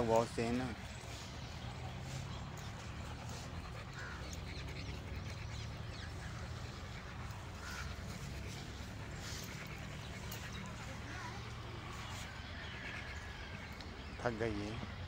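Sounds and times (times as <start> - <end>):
faint animal calls: 2.0 - 14.0.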